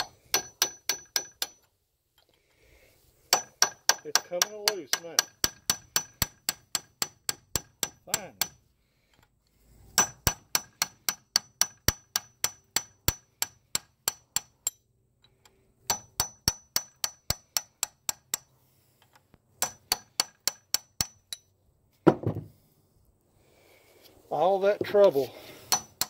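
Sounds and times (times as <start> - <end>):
hammer tapping metal punch: 0.0 - 1.7, 3.3 - 8.6, 10.0 - 18.5, 19.6 - 21.5, 25.7 - 26.0
dull knock: 22.1 - 22.5.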